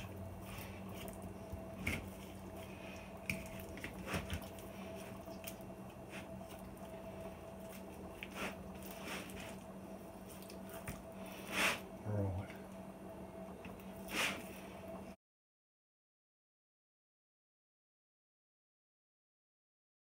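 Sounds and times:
wet squishing: 0:00.0 - 0:11.5
steady low hum: 0:00.0 - 0:15.2.

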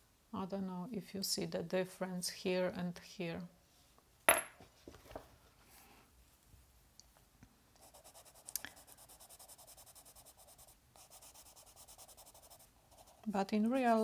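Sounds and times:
pencil scratching on paper: 0:07.8 - 0:14.0.

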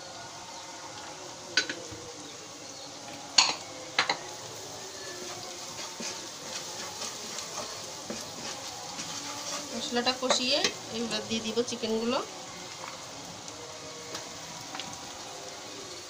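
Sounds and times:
oil sizzling in a pan: 0:00.0 - 0:16.0
wooden spoon scraping a pan: 0:04.0 - 0:11.2.

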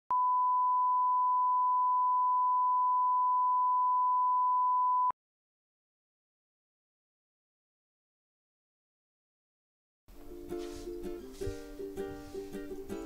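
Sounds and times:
steady reference tone beep: 0:00.1 - 0:05.1.

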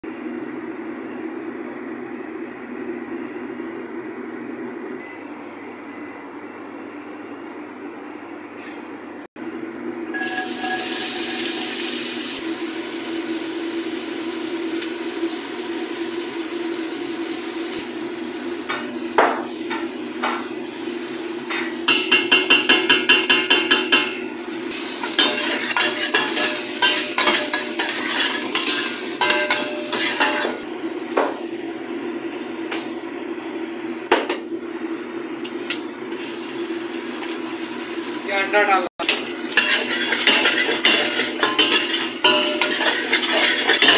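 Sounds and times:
onions sizzling in hot oil: 0:10.2 - 0:30.6, 0:39.0 - 0:43.9
metal spoon scraping a pot: 0:25.0 - 0:30.6, 0:39.1 - 0:43.9
steady hum: 0:39.1 - 0:43.9.

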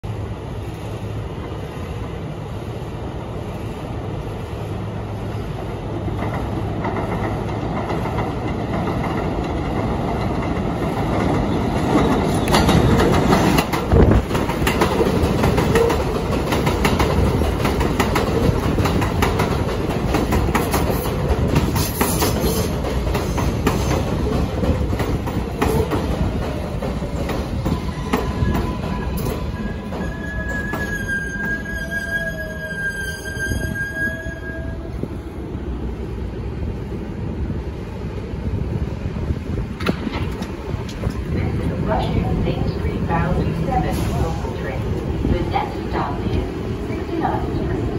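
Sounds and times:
train rumble: 0:00.0 - 0:47.9
train wheels clacking over rail joints: 0:06.1 - 0:30.9.

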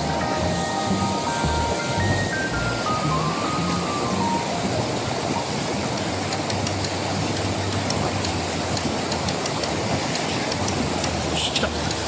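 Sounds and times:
water pouring over a weir: 0:00.0 - 0:12.0.

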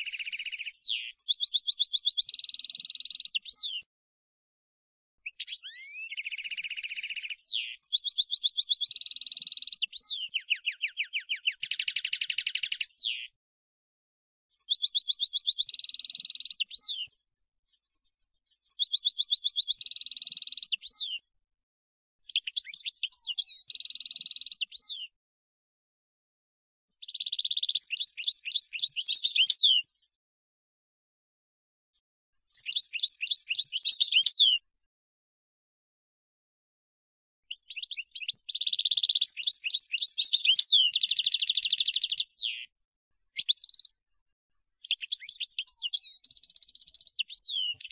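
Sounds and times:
goldfinch twittering song: 0:00.0 - 0:03.8, 0:05.2 - 0:13.3, 0:14.6 - 0:17.1, 0:18.7 - 0:21.2, 0:22.3 - 0:25.1, 0:26.9 - 0:29.9, 0:32.6 - 0:34.6, 0:37.5 - 0:42.7, 0:43.4 - 0:44.0, 0:44.8 - 0:47.9.

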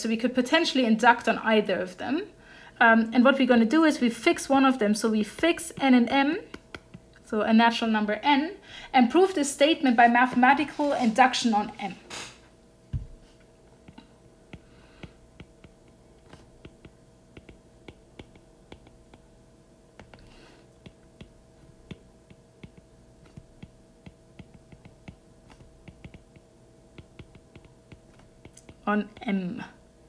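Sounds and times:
faint steady hum: 0:00.0 - 0:30.0
low thump: 0:12.9 - 0:13.2.

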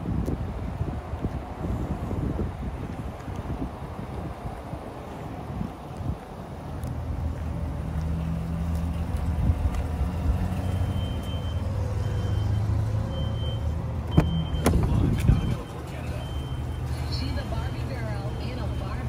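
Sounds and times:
faint high beep: 0:10.6 - 0:19.0.

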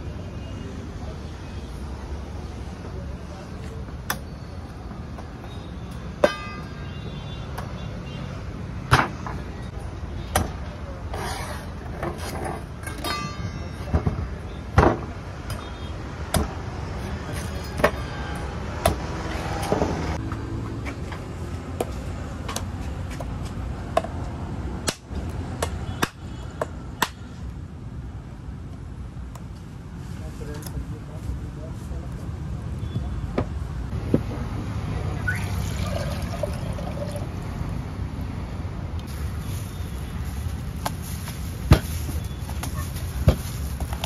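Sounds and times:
knife chopping coconuts on wood: 0:16.2 - 0:16.6, 0:18.8 - 0:19.9, 0:24.8 - 0:27.3.

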